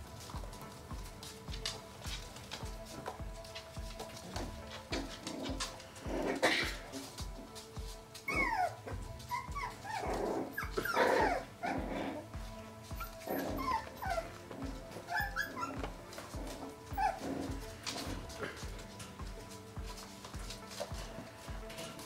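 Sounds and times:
background music with steady beat: 0.0 - 22.0
puppies whining and yipping: 8.2 - 20.6.

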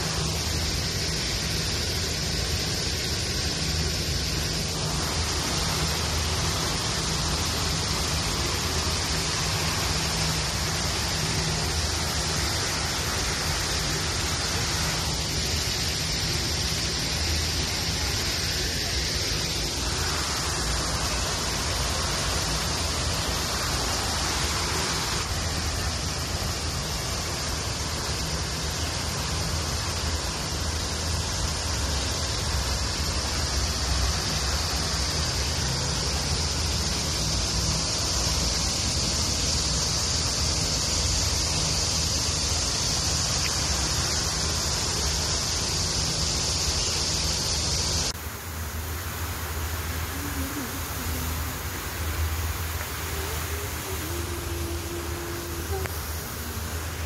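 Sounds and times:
fountain water falling into pond: 0.0 - 57.0.

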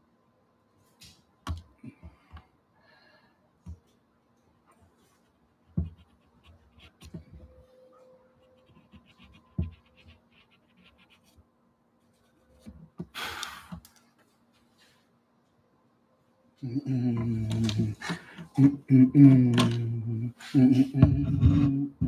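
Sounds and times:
pencil scratching on paper: 5.2 - 7.6, 8.3 - 11.4.

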